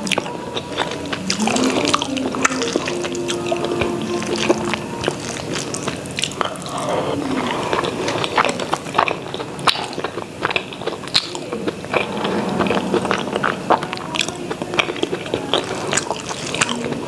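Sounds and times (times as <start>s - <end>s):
chewing and wet mouth sounds: 0.0s - 17.0s.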